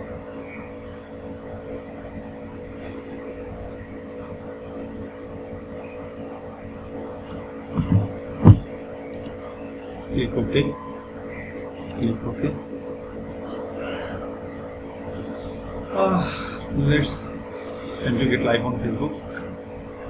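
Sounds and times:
steady background hum: 0:00.0 - 0:20.0
short low thumps: 0:07.7 - 0:08.8.

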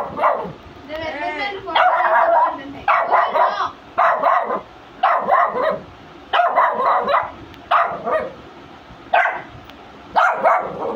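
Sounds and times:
puppy barking: 0:00.0 - 0:00.6, 0:01.8 - 0:08.4, 0:09.1 - 0:09.5, 0:10.1 - 0:10.9.

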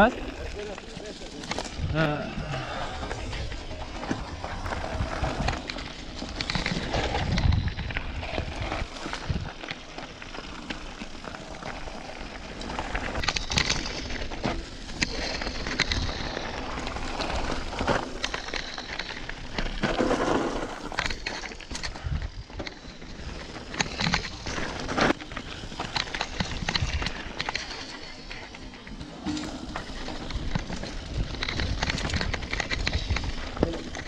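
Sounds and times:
bike rattling: 0:00.0 - 0:34.0
bike tyres crunching gravel: 0:00.0 - 0:34.0
wind buffeting microphone: 0:01.7 - 0:09.6.

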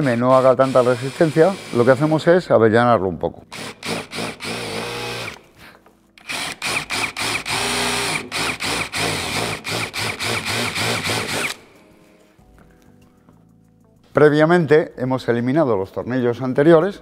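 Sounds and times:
cordless drill motor whine: 0:00.6 - 0:02.1, 0:03.5 - 0:05.4, 0:06.2 - 0:11.6.

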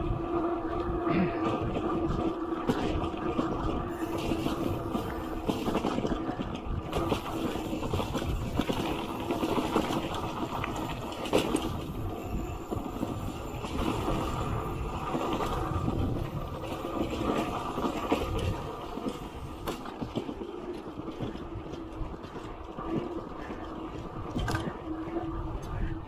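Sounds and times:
bicycle rolling on dirt road: 0:00.0 - 0:26.0.

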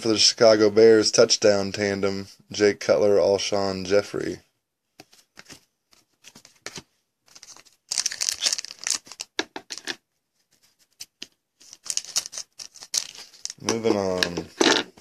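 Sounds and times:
foil wrapper crinkling and tearing: 0:07.3 - 0:09.9, 0:11.6 - 0:14.2.

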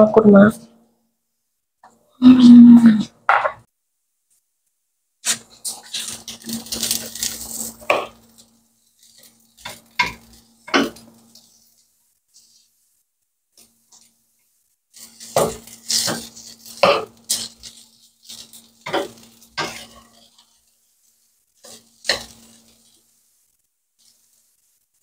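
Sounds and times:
spatula scraping and clanking wok: 0:05.2 - 0:12.9, 0:14.9 - 0:24.5
rice sizzling: 0:05.2 - 0:25.0.

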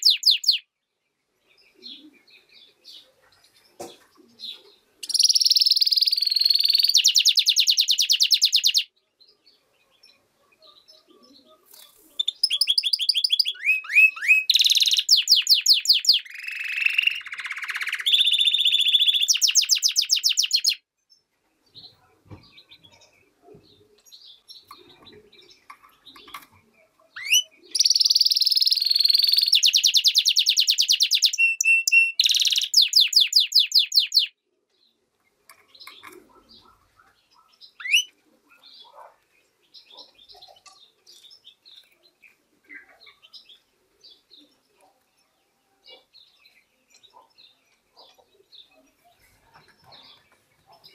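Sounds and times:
songbird trilling and twittering: 0:00.0 - 0:00.7, 0:04.3 - 0:20.9, 0:24.0 - 0:34.4, 0:35.4 - 0:50.9.

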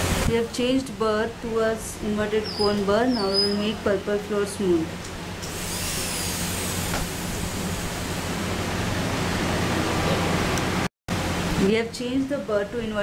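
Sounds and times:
dental drill whining: 0:05.4 - 0:07.1.

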